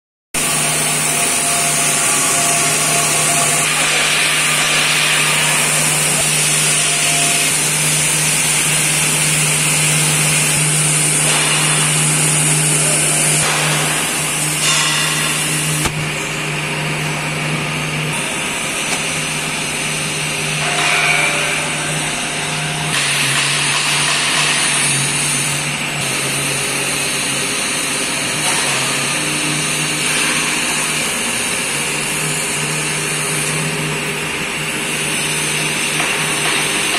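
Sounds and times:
machinery hissing: 0:00.4 - 0:16.8
electric motors humming: 0:00.4 - 0:36.9.

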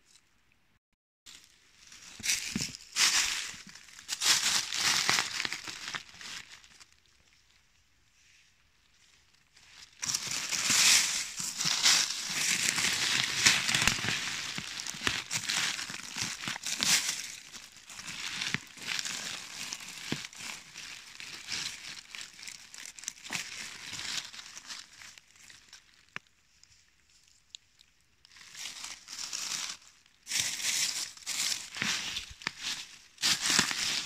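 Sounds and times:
dry leaves crackling and rustling: 0:01.3 - 0:07.0, 0:09.6 - 0:26.1, 0:28.3 - 0:34.0.

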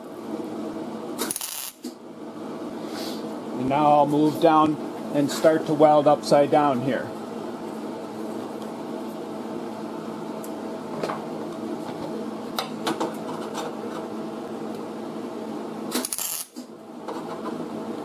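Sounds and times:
machine hum: 0:00.0 - 0:18.0
welding arc crackle: 0:01.2 - 0:02.0, 0:15.9 - 0:16.7.

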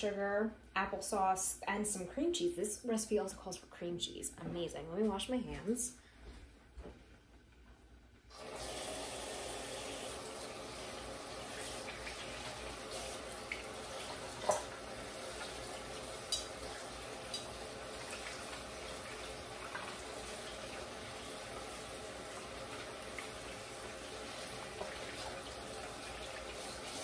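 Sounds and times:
tap water running: 0:08.3 - 0:27.0.

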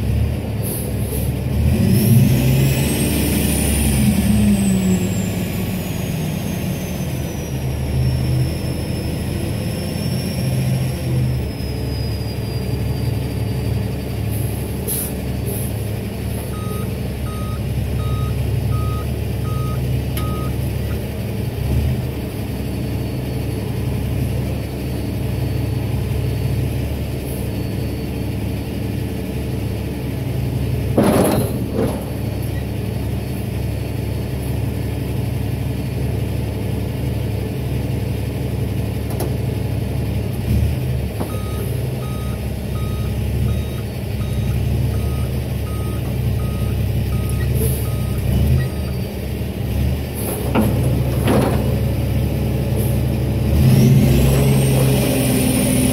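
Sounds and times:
diesel truck engine running: 0:00.0 - 0:55.9
backup alarm beeping: 0:16.5 - 0:20.6, 0:41.3 - 0:49.2
hydraulic tilt bed raising: 0:50.1 - 0:52.2.

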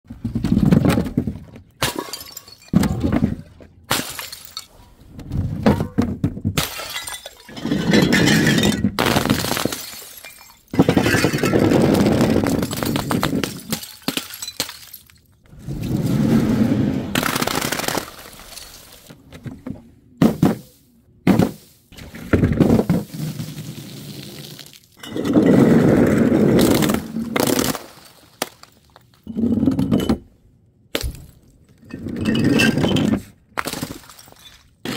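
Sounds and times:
glass shards scattering: 0:01.8 - 0:02.8, 0:03.9 - 0:04.7, 0:06.6 - 0:11.7, 0:12.4 - 0:15.3, 0:17.2 - 0:19.1, 0:32.2 - 0:34.9
glass bottles smashing: 0:01.8 - 0:02.9, 0:03.9 - 0:04.7, 0:06.6 - 0:15.3, 0:17.2 - 0:19.1, 0:31.0 - 0:34.9
balloons bursting: 0:17.2 - 0:18.4.

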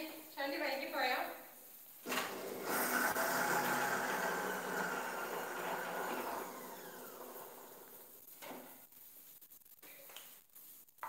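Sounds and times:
mixer-grinder motor whirring: 0:02.1 - 0:08.1.

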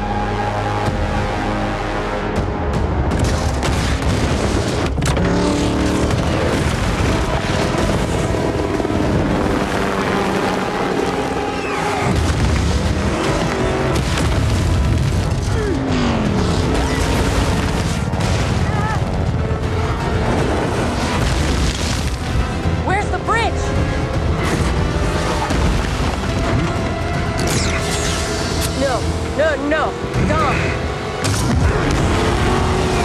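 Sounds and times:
dramatic orchestral score: 0:00.0 - 0:33.0
car engine revving hard: 0:05.2 - 0:12.2, 0:30.0 - 0:33.0
heavy booms and impacts: 0:12.1 - 0:22.8.

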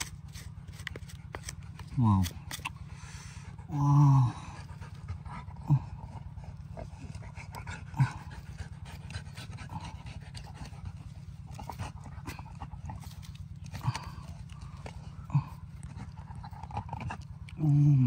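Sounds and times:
dog panting: 0:04.3 - 0:17.6.

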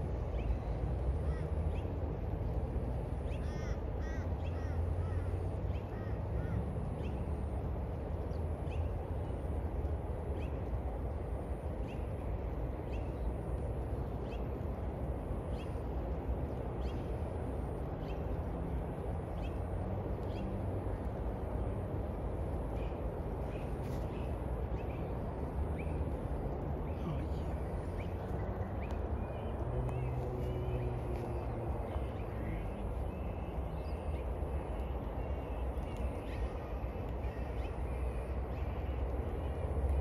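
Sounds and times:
crow cawing: 0:03.4 - 0:05.3
faint regular tick: 0:28.8 - 0:29.0.

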